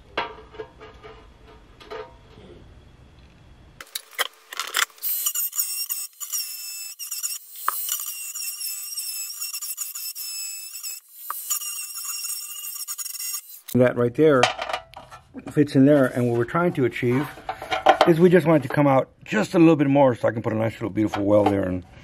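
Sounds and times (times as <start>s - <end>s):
rotary tool grinding metal: 4.8s - 13.8s.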